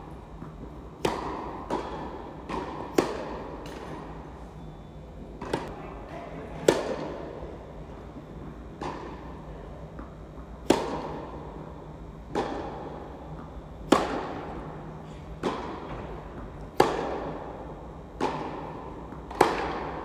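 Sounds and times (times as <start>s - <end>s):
tennis ball hit by rackets: 0.4s - 4.1s, 5.4s - 5.7s, 6.6s - 7.2s, 8.8s - 9.3s, 10.0s - 11.3s, 12.3s - 14.7s, 15.4s - 17.5s, 18.2s - 20.0s.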